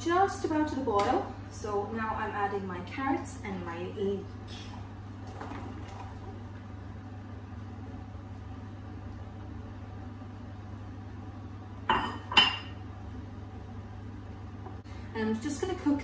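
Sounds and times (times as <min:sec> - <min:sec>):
steady low hum: 0:00.0 - 0:16.0
kitchenware clinking: 0:11.9 - 0:12.8.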